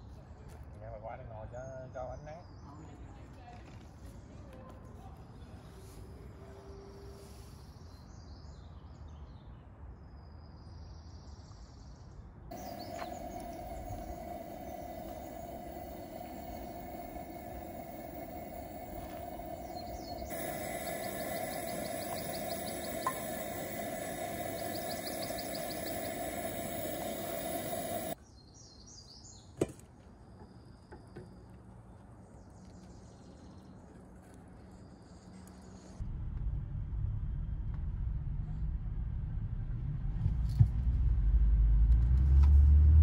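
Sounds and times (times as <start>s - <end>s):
camp stove burner hissing: 12.5s - 28.2s
high rapid chirping: 12.5s - 28.2s
bird chirps: 12.5s - 29.4s.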